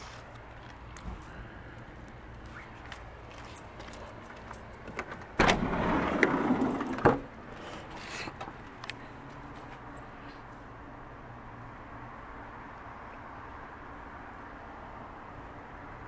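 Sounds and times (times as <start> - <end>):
van sliding door rolling open: 4.9 - 8.6
door clacking shut: 5.0 - 6.3.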